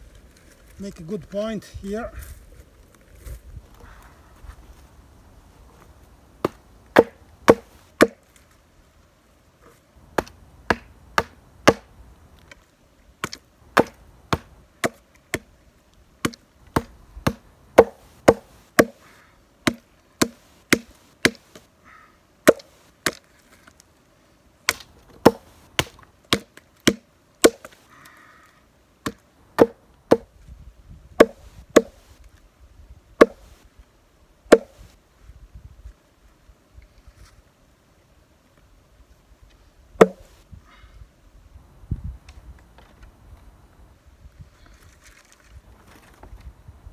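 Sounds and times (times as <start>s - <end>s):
blade chopping wood: 6.4s - 8.2s, 10.2s - 11.9s, 13.2s - 15.5s, 16.2s - 19.0s, 19.6s - 21.6s, 22.4s - 23.2s, 24.7s - 27.8s, 29.0s - 30.3s, 31.2s - 32.0s, 33.2s - 33.5s, 34.5s - 34.8s, 40.0s - 40.3s.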